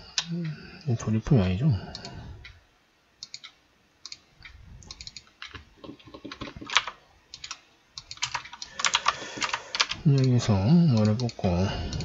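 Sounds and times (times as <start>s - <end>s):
typing on computer keyboard: 4.8s - 10.4s.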